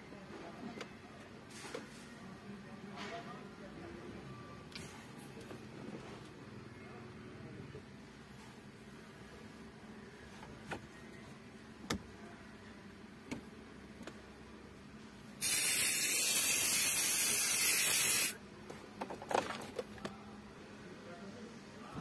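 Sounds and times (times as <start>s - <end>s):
aerosol can spraying: 15.4s - 18.4s.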